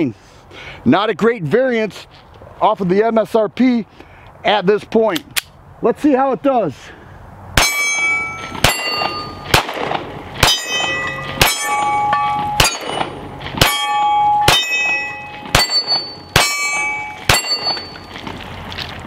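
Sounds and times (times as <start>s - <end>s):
steel target ringing: 7.6s - 9.8s, 10.4s - 18.2s
pistol shots: 7.6s - 18.0s.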